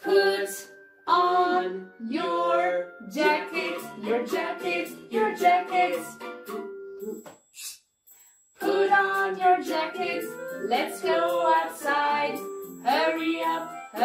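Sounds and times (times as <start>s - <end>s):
person singing: 0.0s - 6.2s, 8.6s - 14.0s
light instrumental accompaniment: 0.7s - 7.3s, 8.6s - 14.0s.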